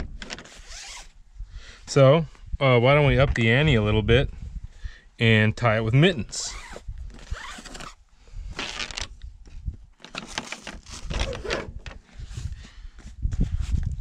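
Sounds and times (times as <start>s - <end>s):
leather gloves rustling on rope: 0.3s - 1.1s, 6.5s - 9.1s.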